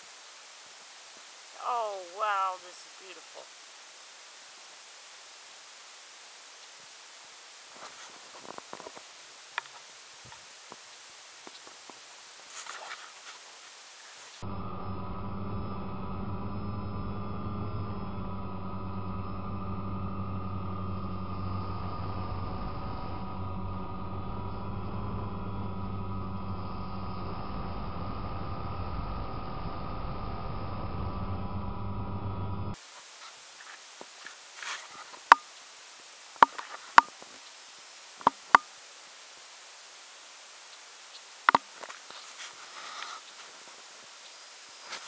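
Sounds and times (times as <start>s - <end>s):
faint ticks and chirps: 0.0s - 14.5s, 32.7s - 45.0s
steady hiss: 0.0s - 14.6s, 32.7s - 45.0s
drone motors humming: 14.1s - 32.8s.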